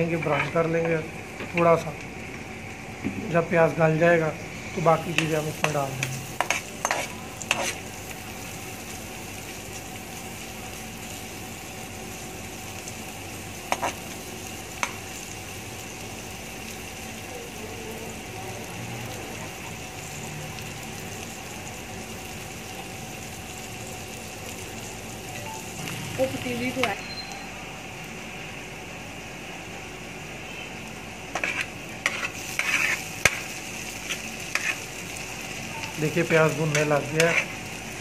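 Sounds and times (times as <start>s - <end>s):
onion sizzling in frying pan: 0.0s - 38.0s.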